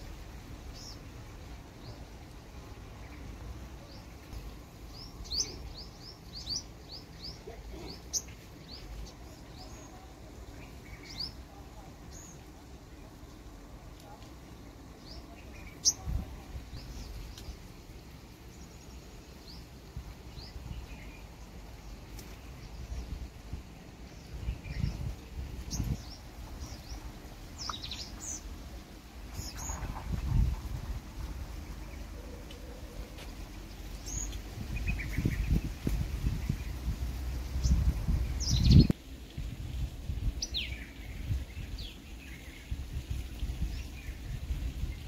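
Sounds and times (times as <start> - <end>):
low outdoor rumble: 0.0 - 45.0
bird chirping: 3.0 - 13.4, 24.0 - 28.5, 37.5 - 38.9.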